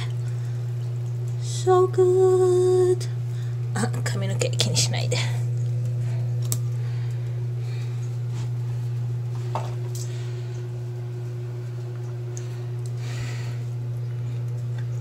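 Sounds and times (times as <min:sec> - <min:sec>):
foot spa motor humming: 0:00.0 - 0:15.0
faint knocks and water splashes: 0:09.4 - 0:10.0.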